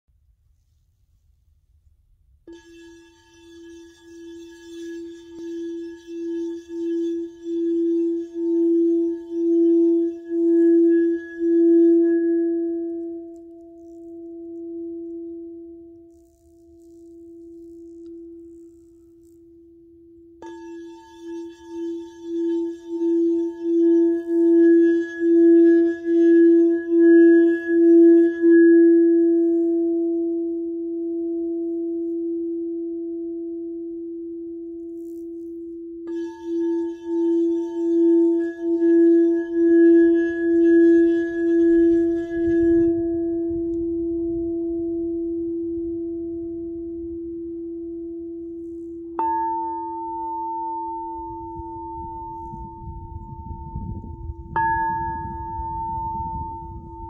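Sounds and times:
singing bowl tone: 2.4s - 57.0s
mallet tapping bowl: 49.2s - 57.0s.

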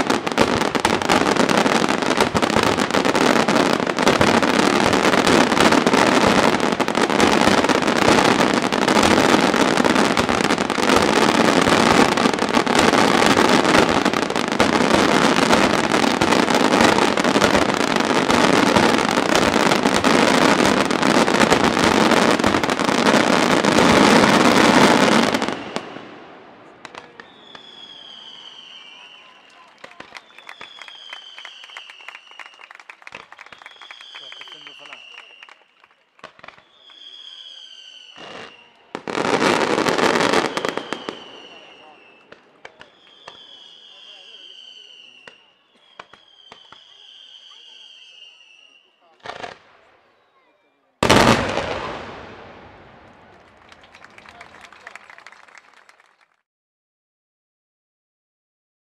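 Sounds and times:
fireworks bangs and crackling: 0.0s - 56.1s
faint high whistle: 27.2s - 35.8s, 36.6s - 38.9s, 40.5s - 49.1s.

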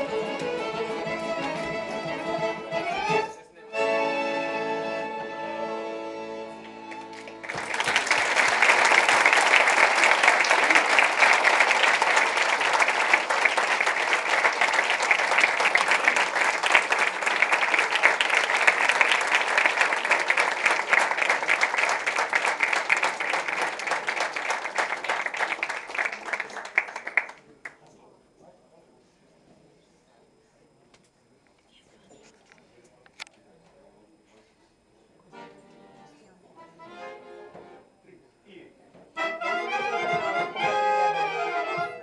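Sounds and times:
folk band violins and accordion: 0.0s - 7.2s, 35.3s - 36.0s, 36.6s - 37.8s, 39.2s - 42.0s
audience applause: 6.8s - 27.8s.

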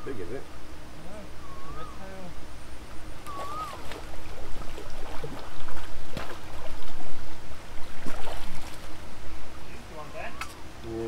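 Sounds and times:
water splashing and sloshing: 3.2s - 9.1s
whistled note: 3.3s - 3.8s.

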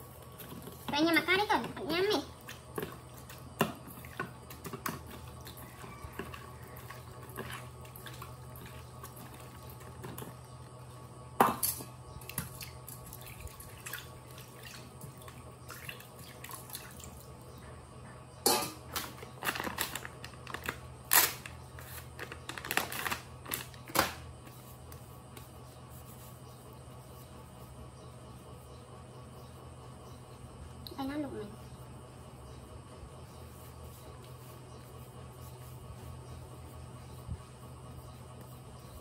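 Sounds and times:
food mixed by hand in metal bowl: 0.0s - 10.4s
steady low hum: 0.0s - 39.0s.

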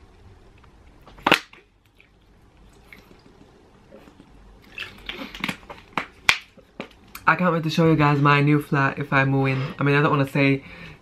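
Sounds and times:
person gulping water: 1.8s - 6.0s
plastic bottle crinkling: 4.6s - 7.0s.

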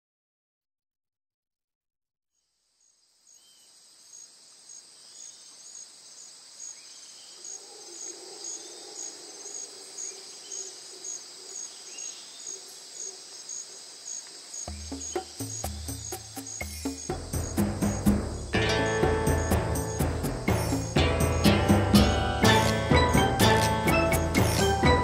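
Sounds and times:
crickets and insects chirping: 2.4s - 25.0s
bird calls: 14.5s - 18.8s.

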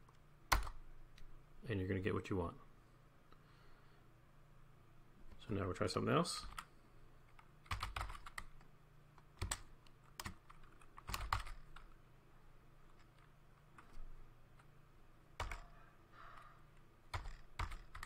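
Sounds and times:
computer keyboard typing: 0.0s - 0.8s, 7.3s - 8.7s, 9.4s - 12.0s, 15.4s - 15.8s, 17.1s - 18.0s.

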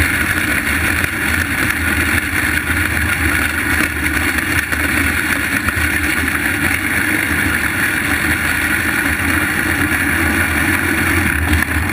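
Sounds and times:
race car engine running: 0.0s - 11.9s.

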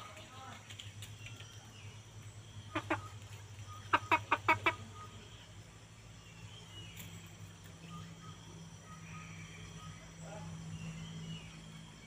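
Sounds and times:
chicken clucking: 2.7s - 5.2s.

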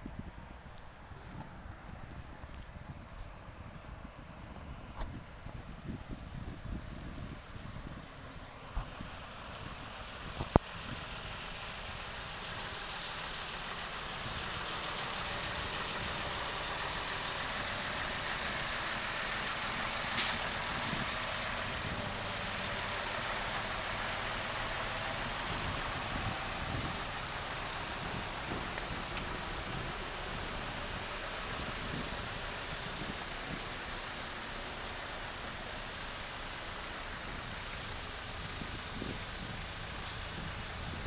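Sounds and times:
trucks passing: 0.0s - 41.0s
short hiss: 20.0s - 20.5s, 40.0s - 40.3s.

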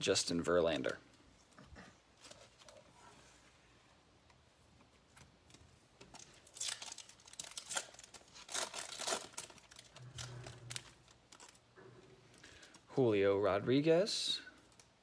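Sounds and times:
wrapper tearing and crinkling: 6.1s - 11.7s.

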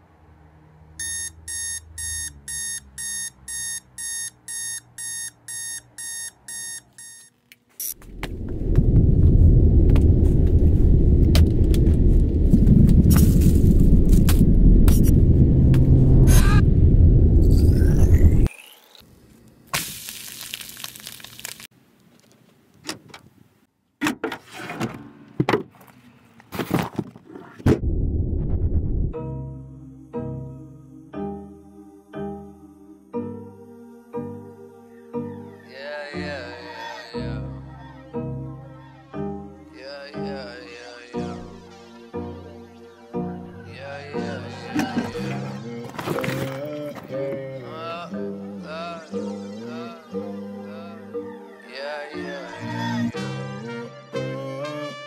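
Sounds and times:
digital alarm clock beeping: 1.0s - 8.0s.

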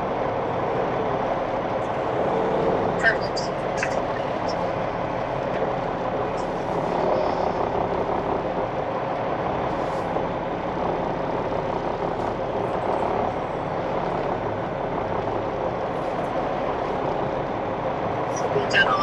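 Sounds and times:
diesel truck engine running: 0.0s - 19.0s.

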